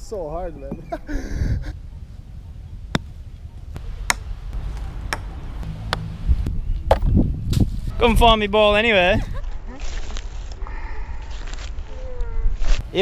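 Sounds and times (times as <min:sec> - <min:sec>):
low steady rumble: 0:00.0 - 0:09.4.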